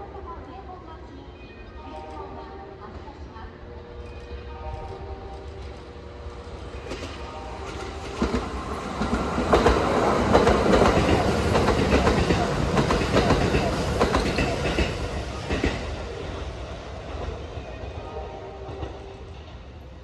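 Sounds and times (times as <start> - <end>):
train running rush: 0.0 - 20.0
train wheels clacking over rail joints: 6.8 - 16.0.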